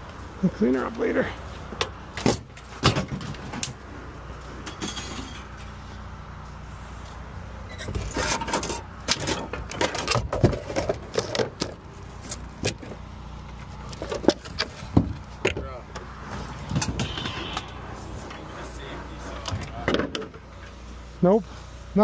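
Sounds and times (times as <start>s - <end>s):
junk knocking and clattering: 1.8s - 3.8s, 7.8s - 13.0s, 13.9s - 17.6s.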